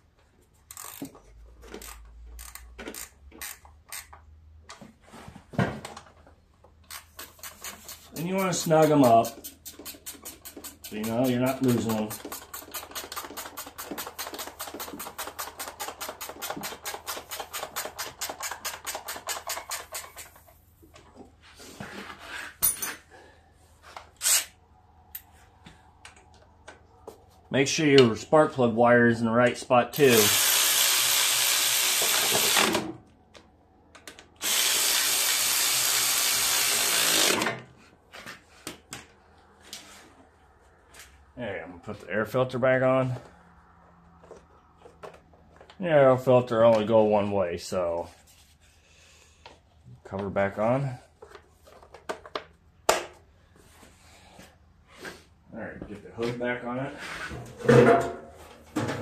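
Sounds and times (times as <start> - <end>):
electric ratchet spinning: 0.7 - 4.2, 30.0 - 32.8, 34.4 - 37.6
socket ratchet clicking: 1.8 - 4.2, 9.2 - 11.3.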